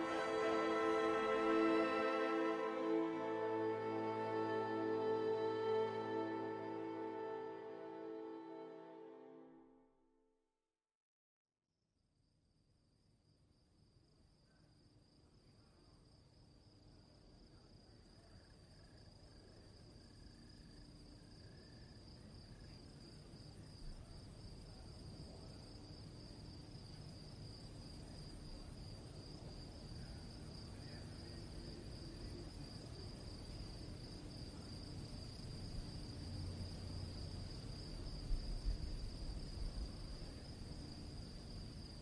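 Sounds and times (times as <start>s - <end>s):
crickets chirring: 25.1s - 42.0s.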